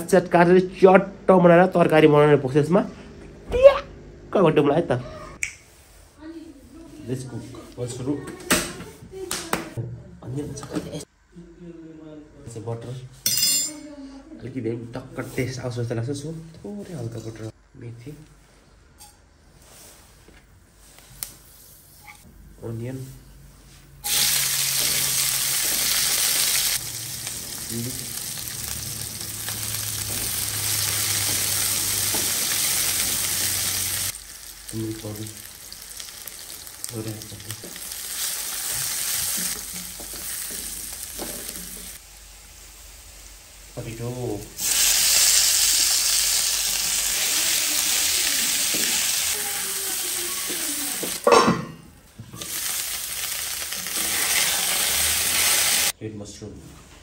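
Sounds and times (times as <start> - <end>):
onions sizzling in butter: 24.0 - 51.3, 52.2 - 55.9.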